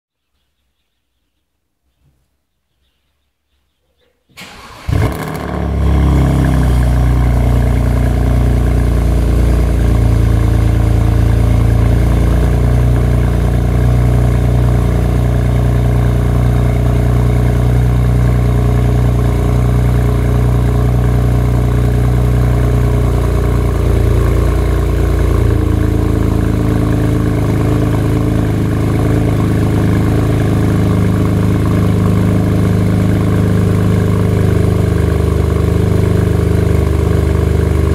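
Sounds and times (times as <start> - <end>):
car engine cranking and starting: 4.4 - 9.0, 21.5 - 37.9
deep engine idle: 5.7 - 37.9.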